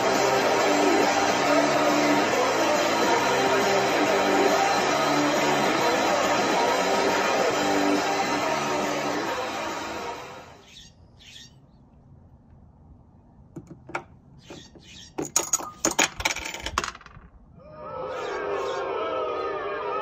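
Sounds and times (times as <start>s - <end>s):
metal cap rattling through pegs: 15.1s - 17.3s.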